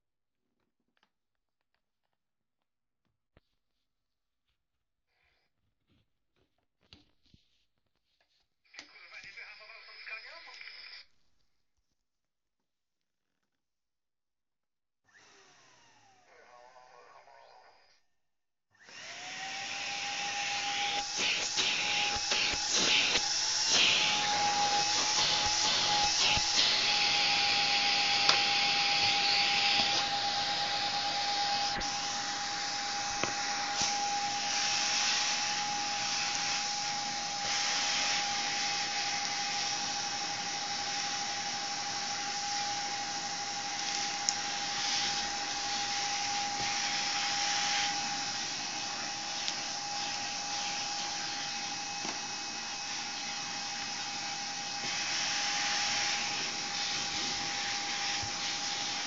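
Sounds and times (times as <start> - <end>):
vacuum cleaner motor whine: 15.1 - 18.0, 18.8 - 59.0.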